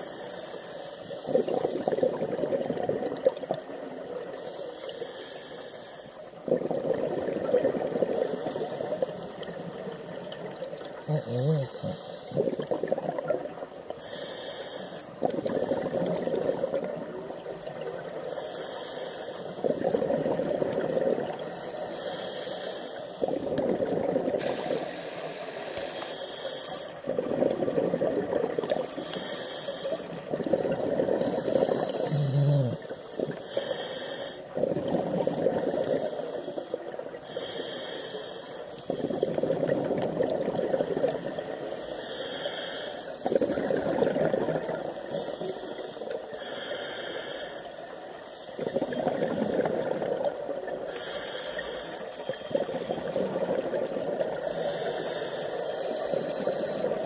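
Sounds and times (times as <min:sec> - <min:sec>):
regulator hiss on inhale: 0:00.0 - 0:02.3, 0:04.2 - 0:06.4, 0:08.0 - 0:10.4, 0:11.0 - 0:12.7, 0:13.5 - 0:17.0, 0:18.0 - 0:20.1, 0:21.3 - 0:23.6, 0:24.2 - 0:27.7, 0:28.5 - 0:40.0, 0:41.4 - 0:49.8, 0:50.4 - 0:57.0
exhaled bubbles burbling: 0:01.2 - 0:04.3, 0:06.4 - 0:13.9, 0:15.2 - 0:18.2, 0:19.6 - 0:21.6, 0:23.2 - 0:25.8, 0:27.0 - 0:29.1, 0:30.0 - 0:33.4, 0:34.5 - 0:37.2, 0:38.8 - 0:41.8, 0:43.2 - 0:45.4, 0:48.5 - 0:50.9, 0:52.4 - 0:54.7.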